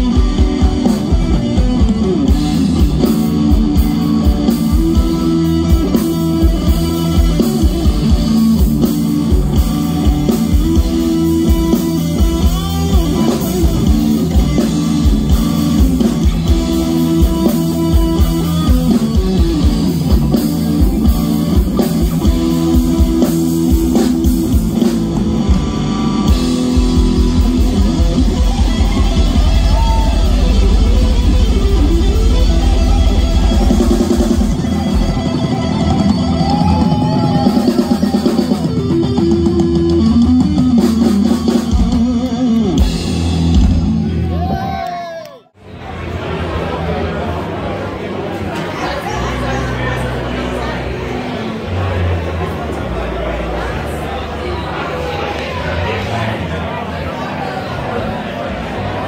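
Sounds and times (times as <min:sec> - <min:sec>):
drum kit steady beat: 0:00.0 - 0:44.4
bass guitar: 0:00.0 - 0:59.0
electric guitars: 0:00.0 - 0:59.0.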